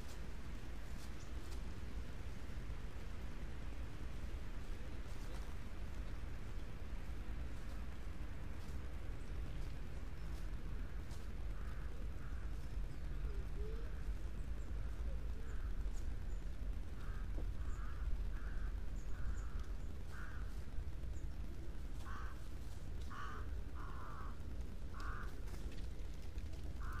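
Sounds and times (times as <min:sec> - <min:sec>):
steady low rumble: 0:00.0 - 0:27.0
crow cawing: 0:11.5 - 0:12.6, 0:17.0 - 0:20.5, 0:22.0 - 0:22.4, 0:23.1 - 0:25.4, 0:26.8 - 0:27.0.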